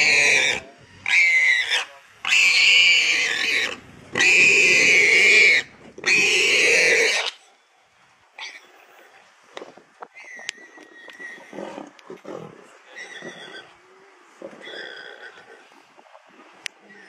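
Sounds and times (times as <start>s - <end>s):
warthog squealing: 0.0s - 7.4s, 10.2s - 13.8s, 14.5s - 15.6s.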